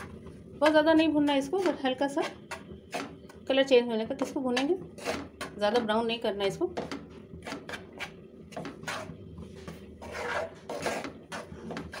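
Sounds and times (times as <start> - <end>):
spatula scraping a pan: 1.5 - 3.3, 4.5 - 5.6, 6.8 - 12.0.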